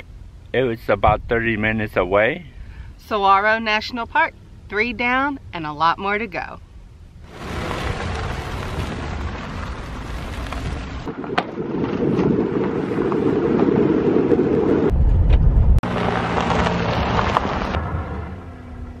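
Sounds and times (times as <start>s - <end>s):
deep rumble: 0.0s - 3.0s, 6.4s - 19.0s
vehicle engine noise: 0.0s - 3.0s, 6.4s - 19.0s
tyres on gravel: 7.2s - 14.9s, 15.8s - 18.2s.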